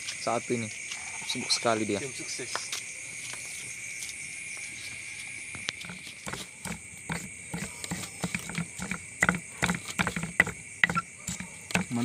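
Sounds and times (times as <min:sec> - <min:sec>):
night insects chorus: 0:00.0 - 0:12.0
stone pestle knocking in mortar: 0:05.6 - 0:12.0.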